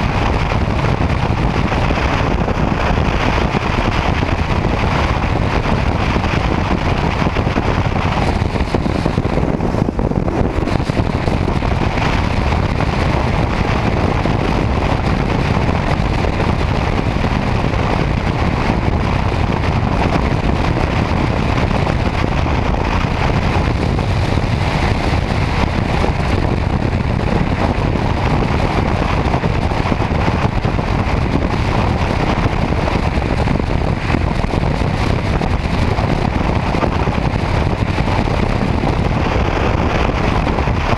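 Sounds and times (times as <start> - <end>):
motorcycle road noise: 0.0 - 40.9
wind buffeting microphone: 0.0 - 40.9.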